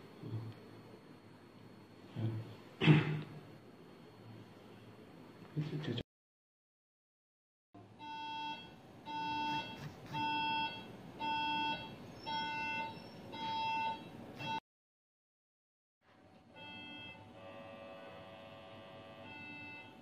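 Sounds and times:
medical equipment beeping: 0:08.0 - 0:14.6, 0:19.1 - 0:20.0.

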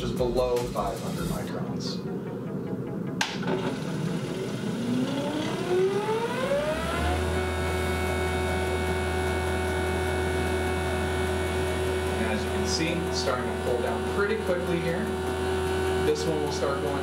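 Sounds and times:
vacuum pump motor humming: 0:03.2 - 0:17.0.

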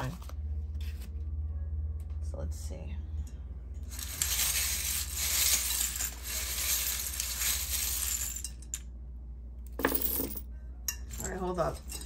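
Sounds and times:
small charms rattling and jingling: 0:03.8 - 0:08.7
charms clattering on countertop: 0:03.8 - 0:08.9, 0:09.7 - 0:12.0.

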